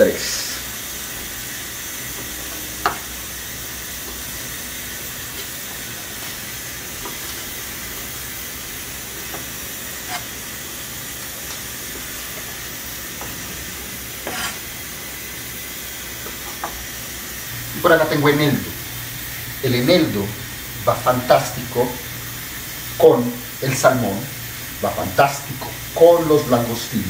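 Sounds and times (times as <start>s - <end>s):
pressure cooker hissing: 0.0s - 27.0s
knife striking cutting board: 9.3s - 10.3s, 14.2s - 14.6s.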